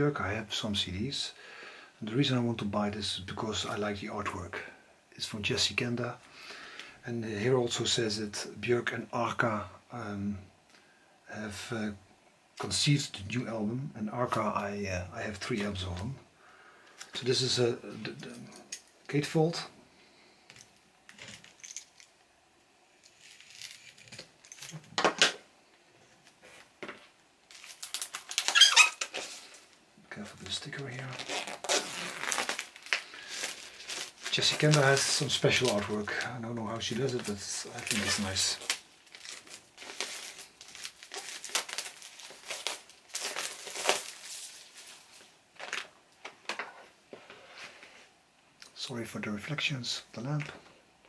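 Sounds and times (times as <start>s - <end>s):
crinkling plastic and card: 20.5s - 22.2s, 23.0s - 25.4s, 26.2s - 48.0s.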